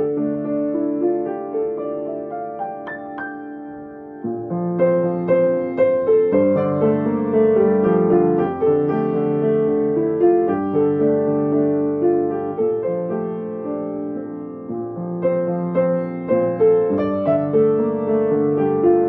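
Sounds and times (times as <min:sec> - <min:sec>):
solo piano playing chords: 0:00.0 - 0:19.0.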